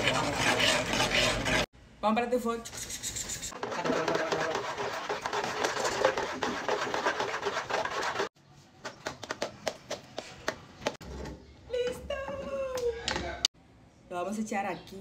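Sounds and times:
spoon scraping metal pot: 0.0s - 1.7s.

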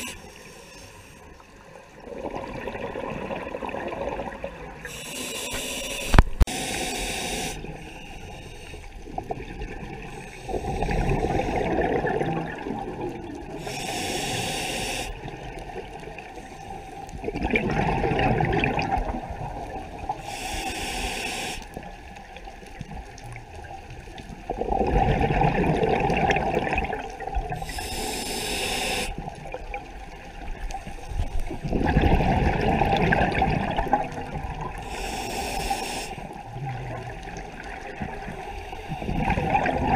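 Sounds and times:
regulator inhale hiss: 0.0s - 1.4s, 4.8s - 9.1s, 10.0s - 11.7s, 13.5s - 15.3s, 16.2s - 17.2s, 20.1s - 21.9s, 27.6s - 29.4s, 34.7s - 36.4s, 38.2s - 39.2s
exhaled bubbles rumbling: 1.9s - 4.9s, 9.0s - 13.6s, 17.2s - 20.2s, 21.8s - 27.7s, 29.2s - 34.9s, 36.3s - 39.9s.

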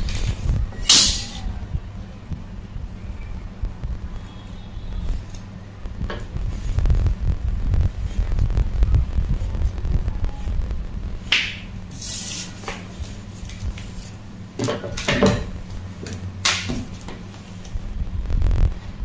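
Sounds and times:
steady low hum: 0.0s - 19.0s
tools knocking on wooden table: 14.6s - 15.5s.

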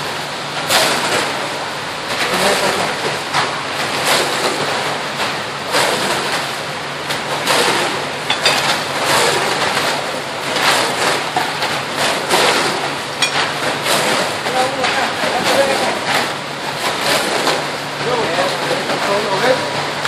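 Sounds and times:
wet concrete rushing down chute: 0.0s - 20.0s.

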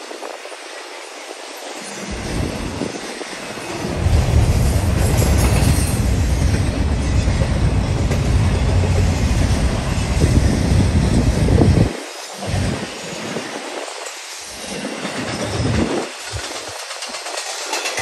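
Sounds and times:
freight train rumbling past: 0.0s - 18.0s.

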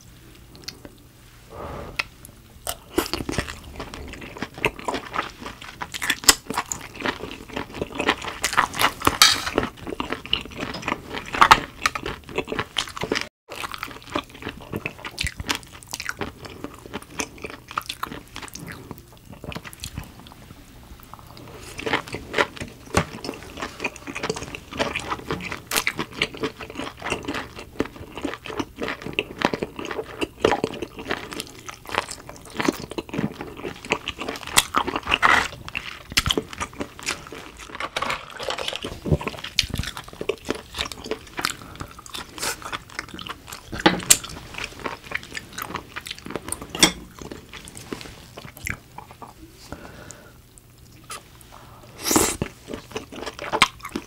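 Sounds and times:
chewing shellfish: 0.5s - 20.4s, 21.0s - 54.0s.

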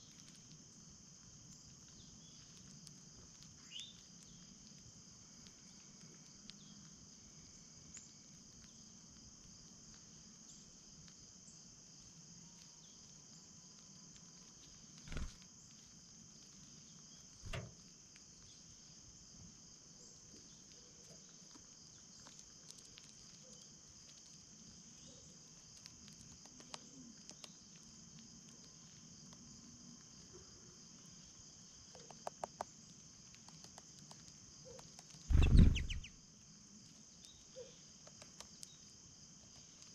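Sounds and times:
dull thumps: 35.3s - 36.1s.

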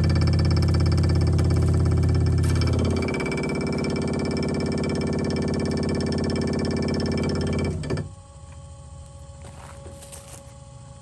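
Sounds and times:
electric motor buzzy rattle: 0.0s - 11.0s
faint hum: 0.0s - 11.0s.

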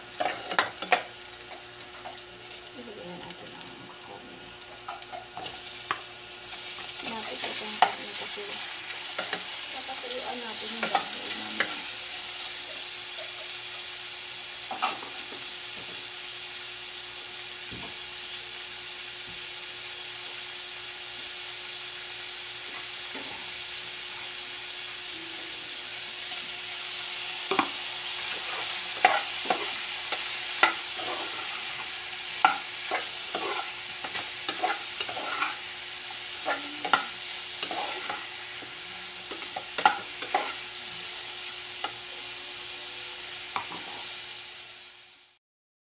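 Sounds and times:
meat sizzling in a pot: 0.0s - 45.4s
spatula scraping and knocking pot: 32.4s - 35.6s.

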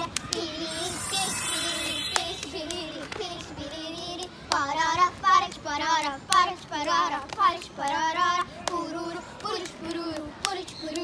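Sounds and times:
hands clapping: 9.4s - 11.0s.

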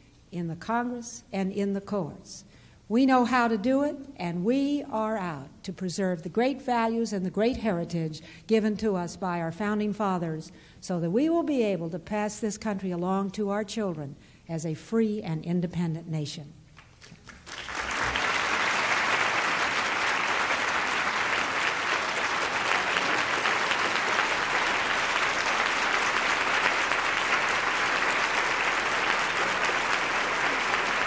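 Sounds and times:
large audience applauding: 16.8s - 31.0s.

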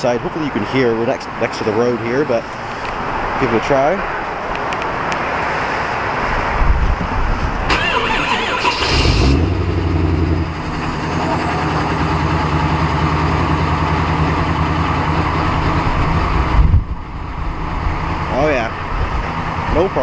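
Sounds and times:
truck engine starting and idling: 7.6s - 20.0s.

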